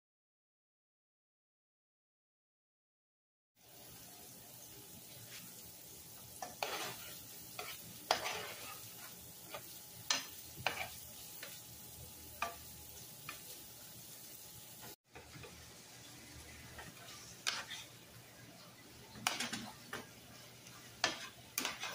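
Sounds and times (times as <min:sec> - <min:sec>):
vegetables sizzling in oil: 0:03.6 - 0:21.9
ground beef being stirred: 0:05.1 - 0:13.8, 0:14.8 - 0:21.9
spatula scraping and tapping pan: 0:05.2 - 0:13.6, 0:14.8 - 0:15.6, 0:16.4 - 0:18.1, 0:19.0 - 0:21.9.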